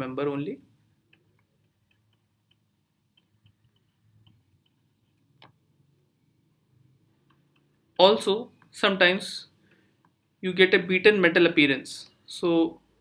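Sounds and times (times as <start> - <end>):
stylus tapping on tablet: 1.0 - 5.7.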